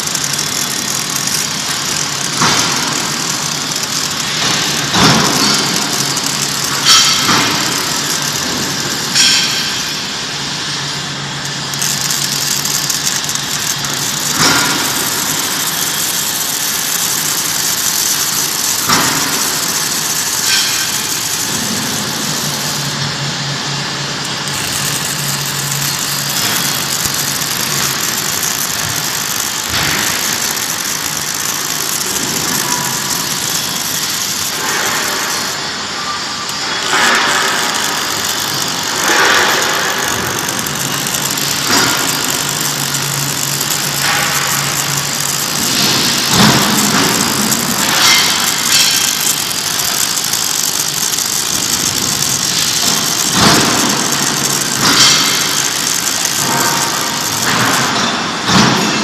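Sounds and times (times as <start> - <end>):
sharp clicks: 0.0 - 9.7, 11.7 - 22.8, 24.3 - 35.6, 36.5 - 58.8
arc welding noise: 0.0 - 59.0.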